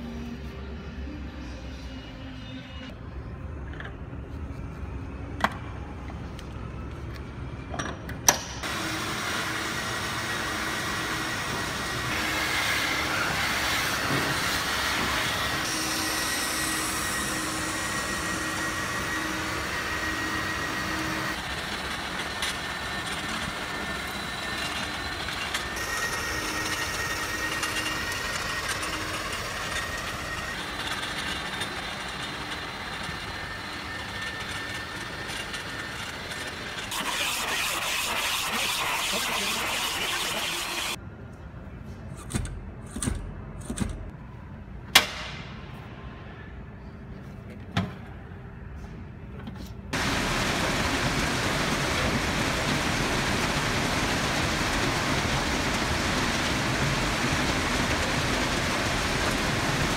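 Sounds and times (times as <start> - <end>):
industrial vacuum cleaner suction: 8.6 - 41.0, 50.0 - 59.9.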